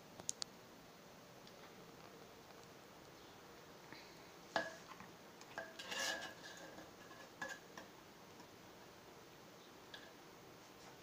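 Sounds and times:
cutlery clinking on earthenware pot: 4.6s - 8.0s.

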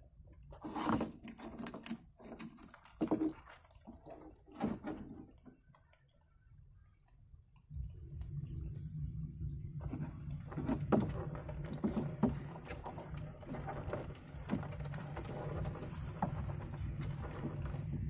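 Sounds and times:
steady low rumble: 6.3s - 18.0s
light clicks and scrapes: 9.8s - 18.0s.

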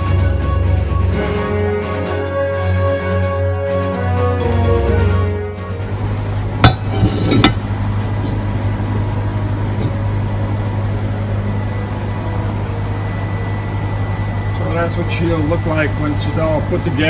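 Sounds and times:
steady low hum: 3.5s - 17.0s
metallic clanks of steel: 6.6s - 7.7s.

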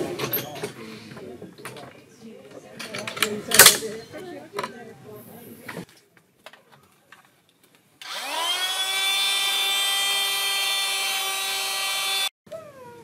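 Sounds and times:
air pump motor whine: 8.0s - 12.3s.

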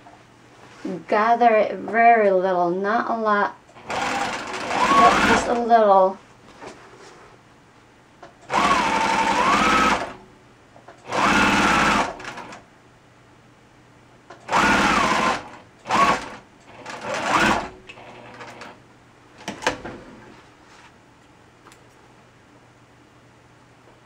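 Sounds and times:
sewing machine stitching: 3.8s - 5.6s, 8.5s - 10.2s, 11.0s - 12.6s, 14.4s - 18.8s.

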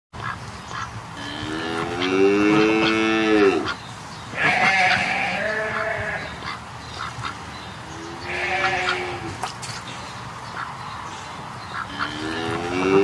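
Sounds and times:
animal calls: 0.2s - 9.8s.

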